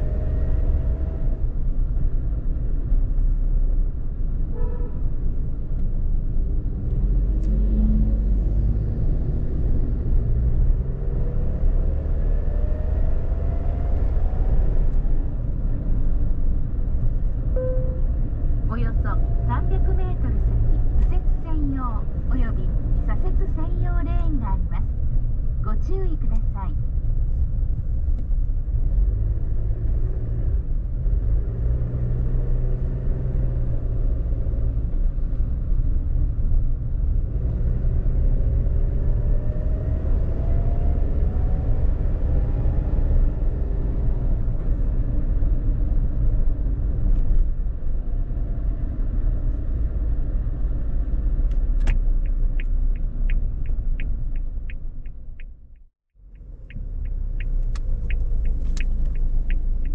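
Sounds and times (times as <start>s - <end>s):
car engine: 0.0s - 59.9s
road noise: 0.0s - 59.9s
turn signal ticking: 51.4s - 59.9s.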